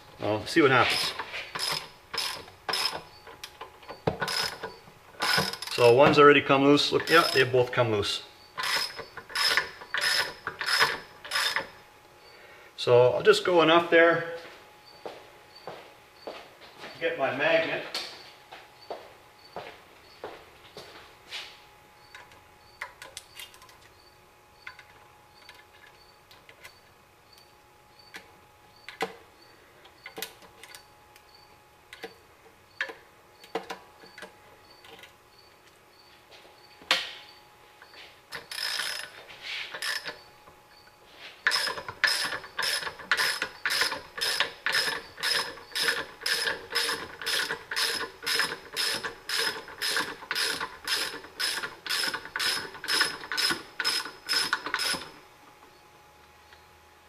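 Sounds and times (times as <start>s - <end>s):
socket ratchet clicking: 8.6s - 11.7s, 38.3s - 39.1s, 39.8s - 40.2s, 41.5s - 55.2s.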